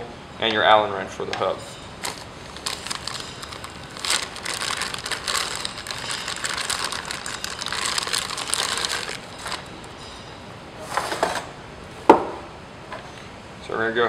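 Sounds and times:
plastic bag crinkling: 0:02.0 - 0:10.2.

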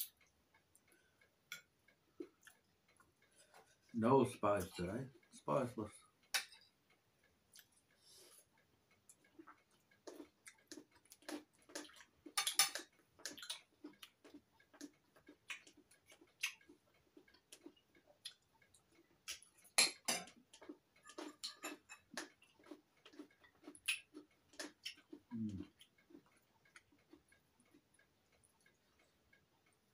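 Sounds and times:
cutlery clicking on plates: 0:06.3 - 0:06.7, 0:10.8 - 0:13.6, 0:19.3 - 0:22.7.

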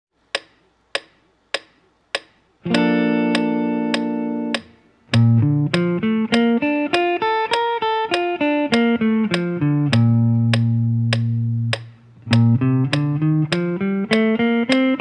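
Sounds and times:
metronome clicking: 0:00.3 - 0:15.0
electric guitar arpeggio: 0:02.7 - 0:15.0.

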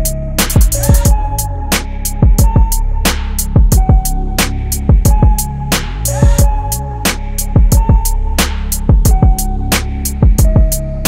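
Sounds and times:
deep kick drum: 0:00.0 - 0:01.4, 0:02.1 - 0:10.9
hi-hat ticks: 0:00.4 - 0:01.2.

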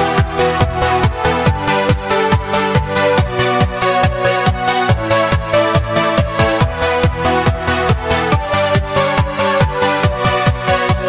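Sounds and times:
kick drum: 0:00.0 - 0:11.0.

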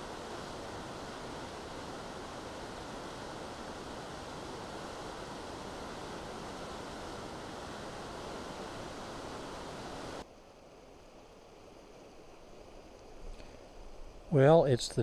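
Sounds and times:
whitewater rushing through rapids: 0:00.0 - 0:10.2
river trickle and hiss: 0:00.0 - 0:14.8.

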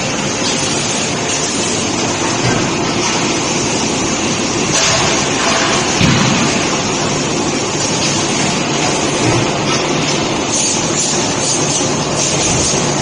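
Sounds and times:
forge shop noise: 0:00.0 - 0:13.0
forging press heavy thud: 0:04.7 - 0:07.3.

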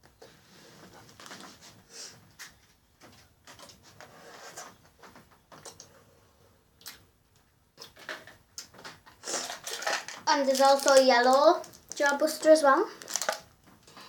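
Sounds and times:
sweet packet crinkling: 0:09.2 - 0:13.5.

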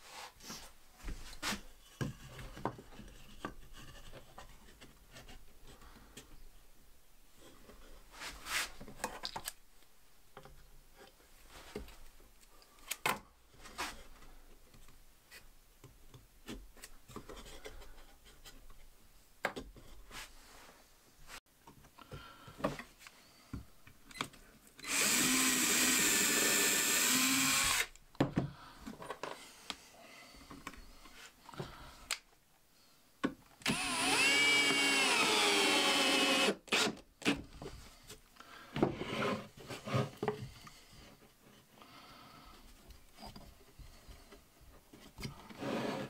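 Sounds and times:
cordless drill running: 0:24.8 - 0:28.0, 0:33.6 - 0:36.9.

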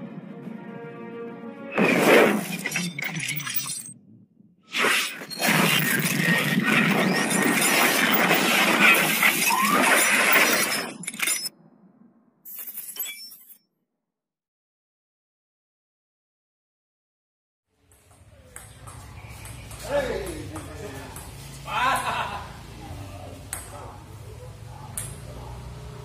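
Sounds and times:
shattering crash sound effect: 0:01.8 - 0:03.6, 0:04.7 - 0:11.0.

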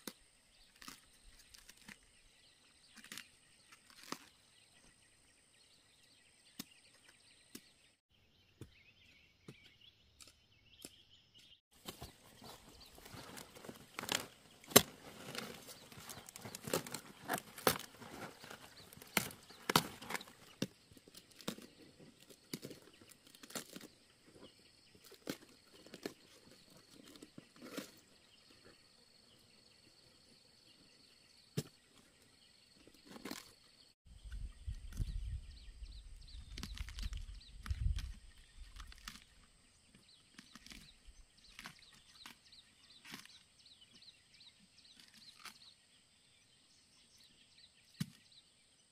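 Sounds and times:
leaves cracking and snapping: 0:00.0 - 0:02.0, 0:02.9 - 0:04.4, 0:13.0 - 0:23.9, 0:36.4 - 0:39.3, 0:41.5 - 0:42.4, 0:45.0 - 0:45.6.

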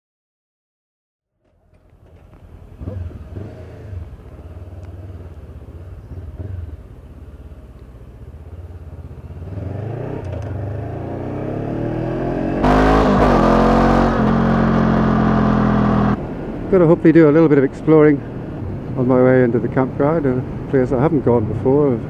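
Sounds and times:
motorcycle engine revving: 0:02.7 - 0:07.0, 0:08.9 - 0:16.2.

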